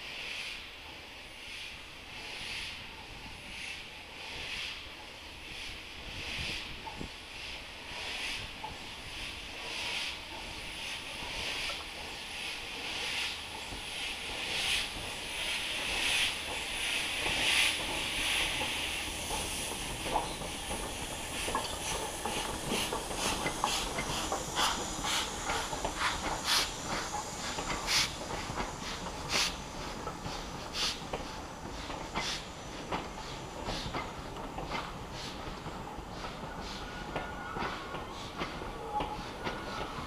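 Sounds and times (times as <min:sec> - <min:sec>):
steam locomotive chuffing: 0:00.0 - 0:40.0
wheels clicking over rail joints: 0:09.8 - 0:40.0.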